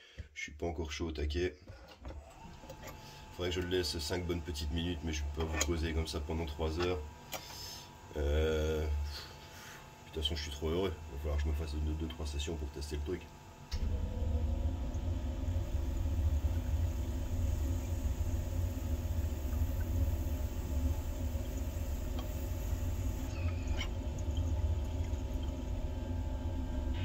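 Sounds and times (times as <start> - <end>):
water bubbling in bong: 13.8 - 26.9.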